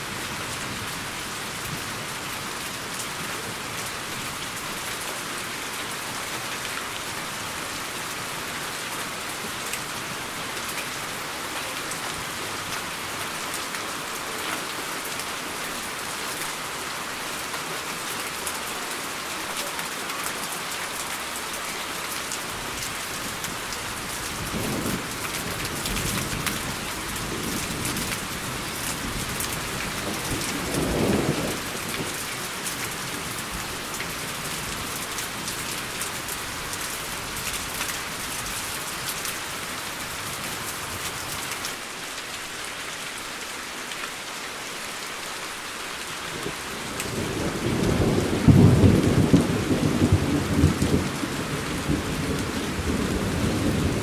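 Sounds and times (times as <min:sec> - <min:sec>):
steady rain: 0:00.0 - 0:54.0
thunder rumbling: 0:47.1 - 0:54.0.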